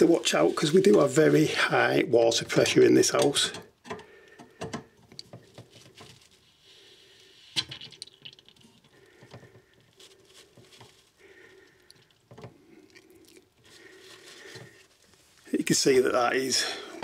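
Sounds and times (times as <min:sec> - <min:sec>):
paper towel rustling and crunching: 0:00.0 - 0:02.6, 0:05.5 - 0:06.8, 0:09.7 - 0:11.4, 0:13.6 - 0:17.0.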